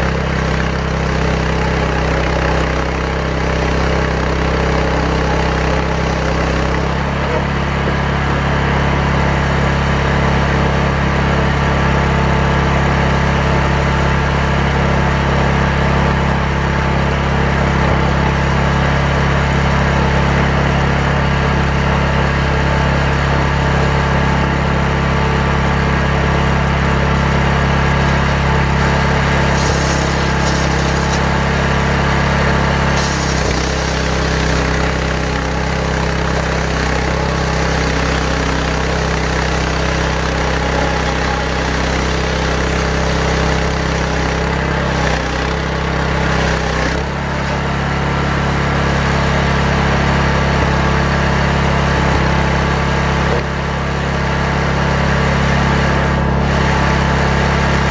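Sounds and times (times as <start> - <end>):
chainsaw cutting log: 0.0 - 9.4, 26.3 - 54.9.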